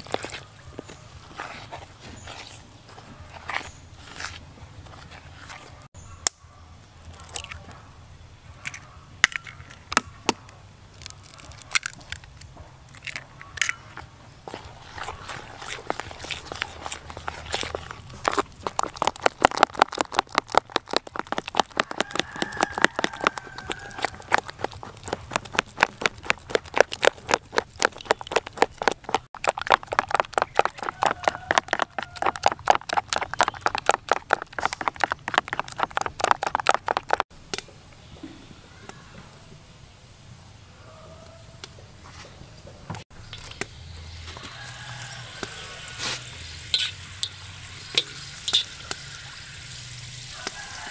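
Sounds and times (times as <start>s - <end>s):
spoon scraping flour in bowl: 14.5s - 37.2s, 45.4s - 47.0s
egg tapping and cracking: 14.5s - 37.3s.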